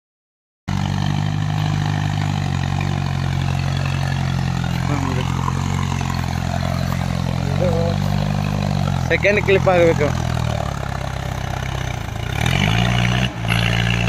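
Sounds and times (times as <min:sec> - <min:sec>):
tractor diesel engine running: 0:00.7 - 0:14.0.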